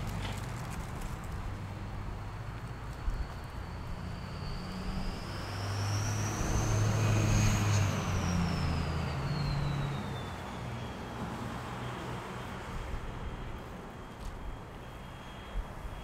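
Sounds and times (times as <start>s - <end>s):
vehicle engine passing by: 0.0s - 13.8s
thin high whine: 1.7s - 16.0s.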